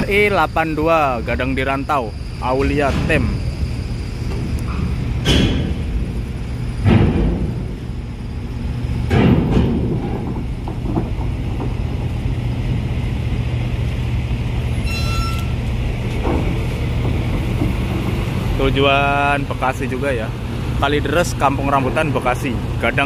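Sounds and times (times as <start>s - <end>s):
bus diesel engine running: 0.0s - 23.0s
short high beep: 14.8s - 15.6s.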